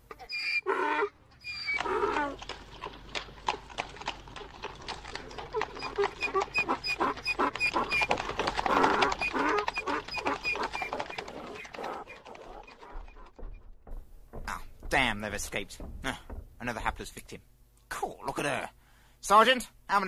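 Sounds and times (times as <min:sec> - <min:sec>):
hooves clip-clopping: 0:01.7 - 0:17.4
cartoon donkey braying: 0:05.3 - 0:13.2.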